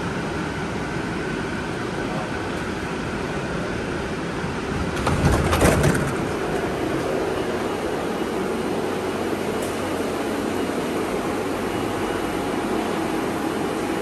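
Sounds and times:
train humming at platform: 0.0 - 14.0
train doors opening clatter: 4.6 - 8.1.

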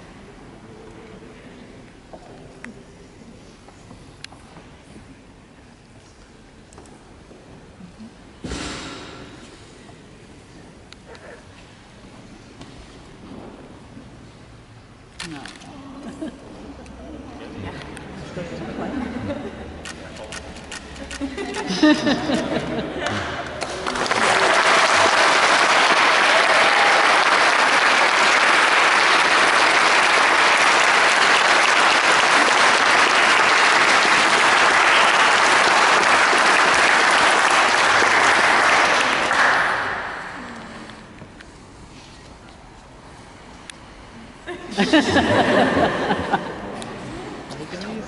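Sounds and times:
guests applauding: 23.0 - 40.8.

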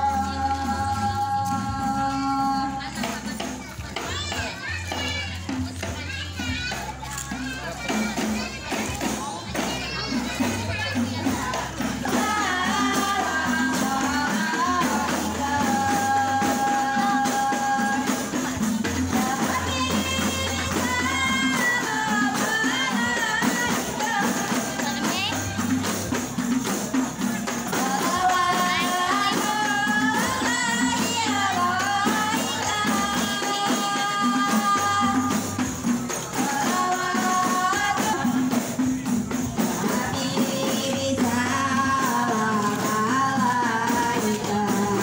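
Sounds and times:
jingling frame drum rhythm: 0.0 - 45.0
person singing: 39.6 - 45.0.

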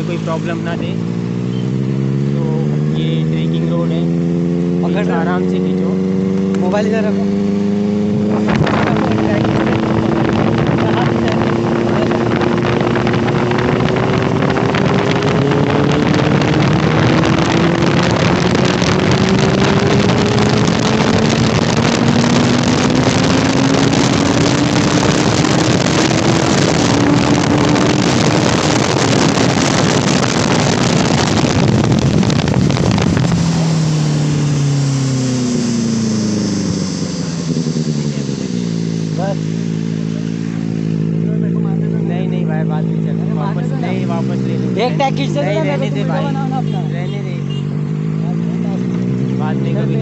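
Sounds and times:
motorcycle engine under load: 0.0 - 44.8
wind rushing over microphone: 5.9 - 43.2.

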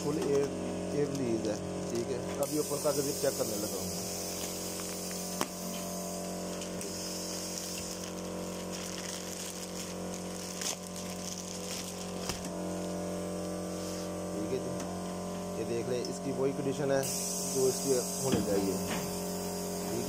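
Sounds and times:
plastic bag crinkling: 0.0 - 13.7
machine hum with hiss: 0.0 - 20.0.

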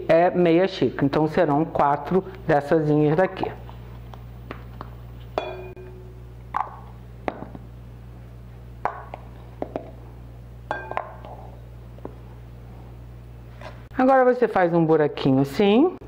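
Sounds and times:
low hum: 3.5 - 14.0.

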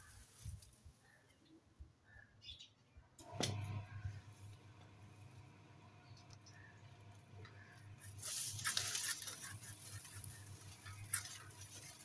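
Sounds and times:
sickle cutting palm frond: 8.0 - 12.0.

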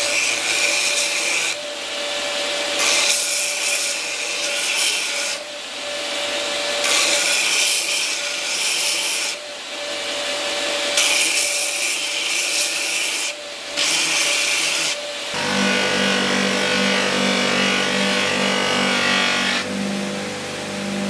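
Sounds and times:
belt grinder sanding wood: 0.0 - 9.4, 10.0 - 21.0
polishing machine motor hum: 15.2 - 21.0.

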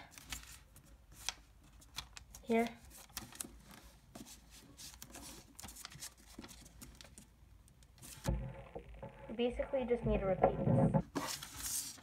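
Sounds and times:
paper rustling and crinkling: 0.0 - 7.3, 11.1 - 12.0.

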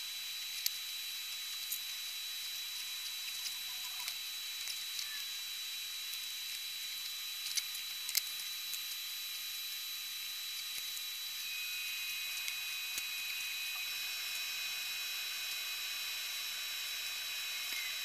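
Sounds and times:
faint high whine: 0.0 - 18.0.

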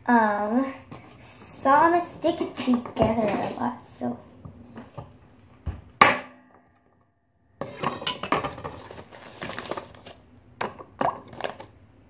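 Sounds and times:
plastic bag crinkling: 8.7 - 10.2, 11.1 - 11.7.

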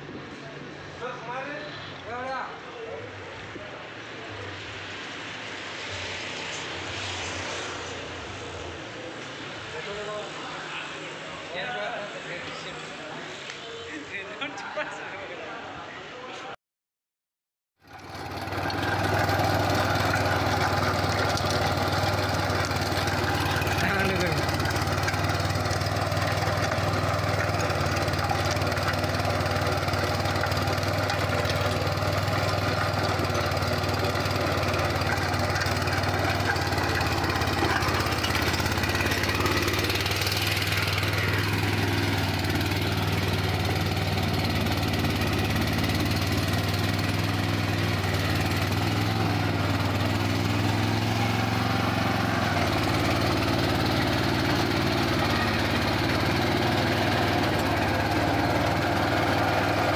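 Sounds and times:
rotary tiller in soil: 17.8 - 59.9
tractor diesel engine under load: 17.8 - 59.9.

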